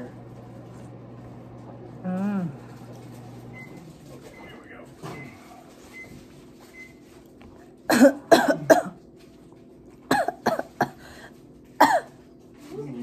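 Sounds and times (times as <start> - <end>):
person coughing: 7.9 - 9.0, 10.1 - 11.2, 11.8 - 12.2.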